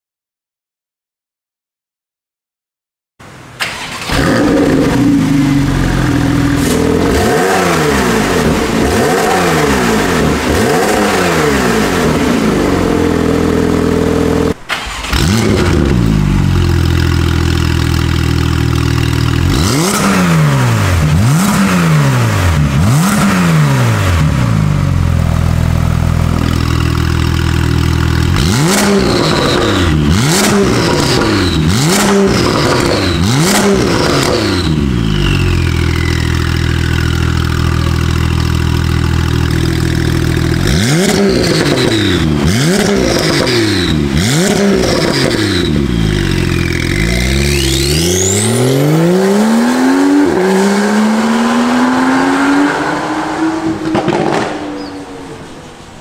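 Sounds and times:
car engine idling and revving: 0:03.2 - 0:56.0
short falling whistles: 0:35.0 - 0:36.9.

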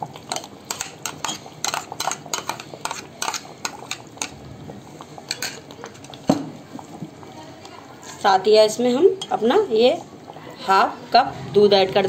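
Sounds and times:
metal spoon scraping a pot: 0:00.3 - 0:04.4.

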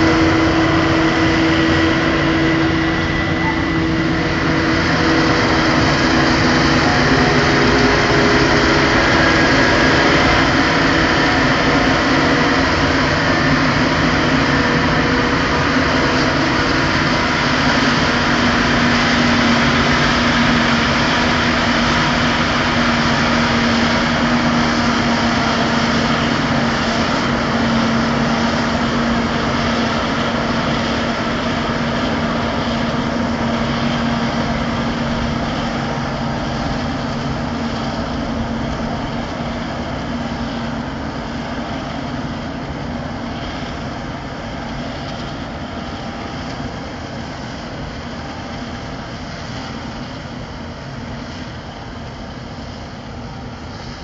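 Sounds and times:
forage harvester engine drone: 0:00.0 - 0:54.0.

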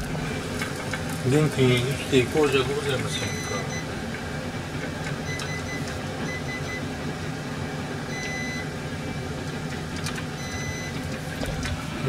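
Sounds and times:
steady low hum: 0:00.0 - 0:12.0
short high beeps: 0:03.2 - 0:03.8.

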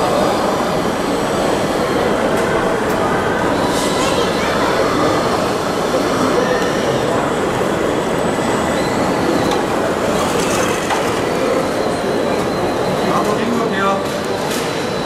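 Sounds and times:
busy indoor hall din: 0:00.0 - 0:15.0.

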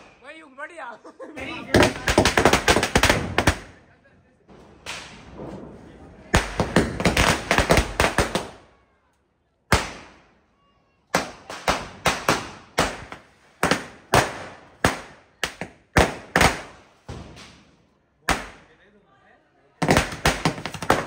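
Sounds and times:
firecrackers banging: 0:01.4 - 0:03.9, 0:04.5 - 0:08.8, 0:09.7 - 0:10.4, 0:11.1 - 0:18.8, 0:19.8 - 0:21.0.

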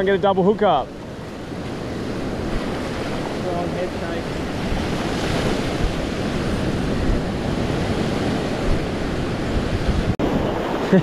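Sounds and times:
waves washing on sand: 0:00.0 - 0:11.0
wind buffeting microphone: 0:00.0 - 0:11.0.

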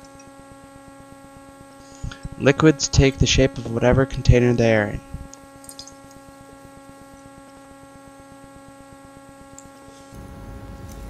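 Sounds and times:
electrical hum with buzzing: 0:00.0 - 0:11.0
low rumble: 0:10.2 - 0:11.0.

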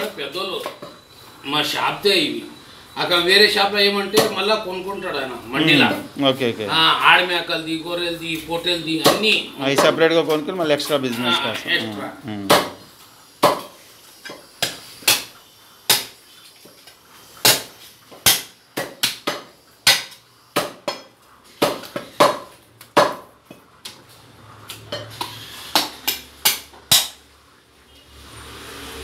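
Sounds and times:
cleaver chopping on wooden block: 0:12.5 - 0:12.8, 0:13.4 - 0:13.7, 0:17.4 - 0:23.3.

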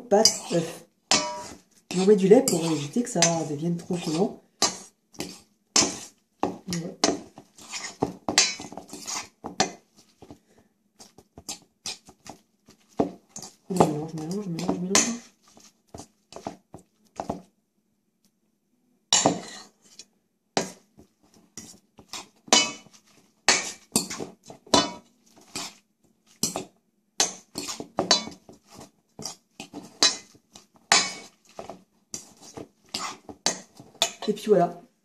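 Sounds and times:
utensil clinking on metal bowl: 0:00.1 - 0:09.8, 0:13.0 - 0:16.5, 0:21.6 - 0:25.8, 0:26.4 - 0:34.3.

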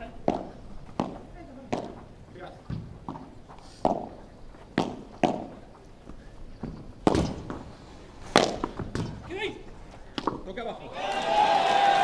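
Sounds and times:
ball struck by padel rackets: 0:00.1 - 0:09.3, 0:10.1 - 0:10.5
ball rebounding off walls: 0:00.2 - 0:05.7, 0:06.6 - 0:07.7, 0:08.3 - 0:09.3.

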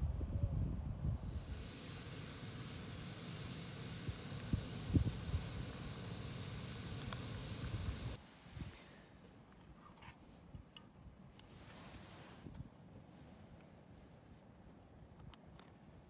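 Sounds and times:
wind rumbling on microphone: 0:00.0 - 0:02.9, 0:03.8 - 0:06.0, 0:06.7 - 0:08.9
camping stove burning with hiss: 0:01.1 - 0:09.2.

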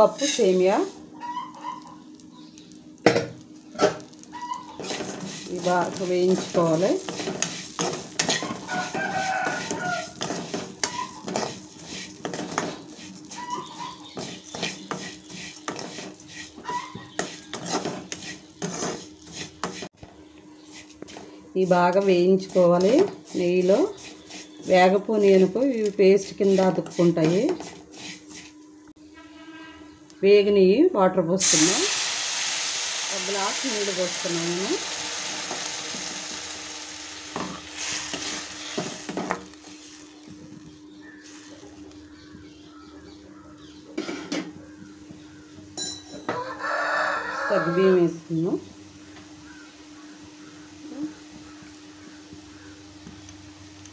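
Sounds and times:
metal ladle scraping a pan: 0:00.0 - 0:01.0, 0:04.1 - 0:20.0, 0:20.6 - 0:28.6, 0:37.4 - 0:40.1.

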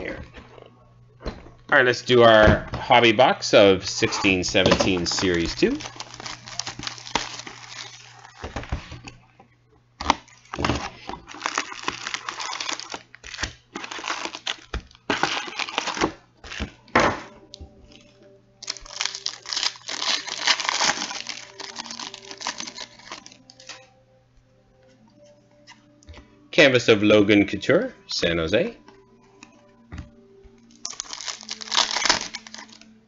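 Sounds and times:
packaging crinkling and ripping: 0:04.0 - 0:08.8, 0:10.0 - 0:16.8, 0:17.9 - 0:23.9, 0:30.6 - 0:33.0.

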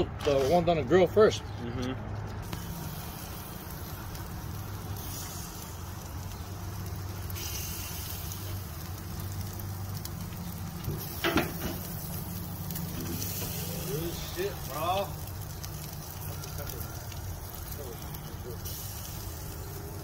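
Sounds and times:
meat sizzling on a grill: 0:02.2 - 0:20.0.

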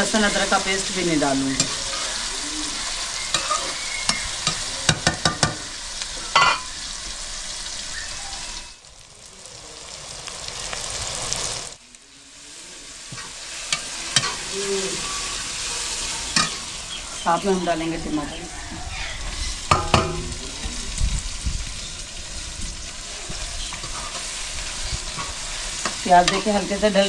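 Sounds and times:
onions sizzling in a pot: 0:00.0 - 0:27.0
metal spoon stirring against pot: 0:01.6 - 0:05.7, 0:25.1 - 0:27.0.

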